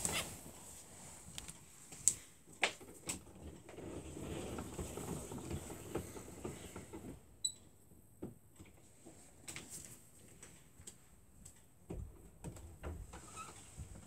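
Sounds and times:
soft scratching and rustling: 0.0 - 2.3, 3.3 - 7.2.

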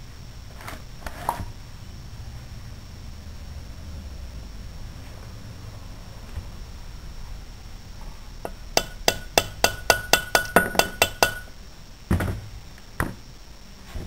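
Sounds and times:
heavier metal knock: 8.5 - 11.5
metal-on-metal taps: 8.5 - 11.5.

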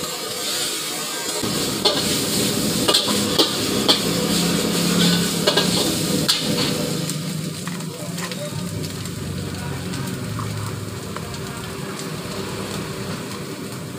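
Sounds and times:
noodles sizzling in a wok: 0.0 - 13.9
metal spatula clanking on wok: 4.9 - 6.8.

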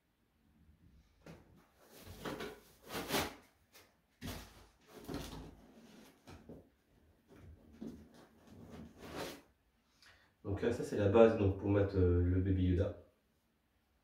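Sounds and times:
packaging rustling and scraping: 1.8 - 6.5.

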